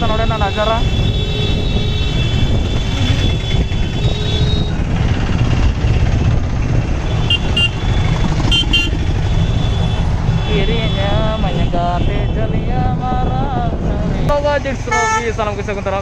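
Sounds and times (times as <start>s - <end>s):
motorcycle engine rumble: 0.0s - 16.0s
wind on moving motorcycle: 0.0s - 16.0s
vehicle horns beeping: 0.2s - 4.8s, 7.0s - 12.6s, 14.9s - 15.4s.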